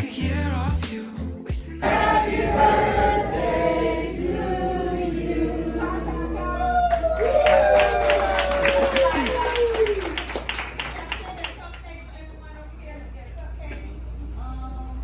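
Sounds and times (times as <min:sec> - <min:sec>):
group of people singing: 0:00.0 - 0:06.8.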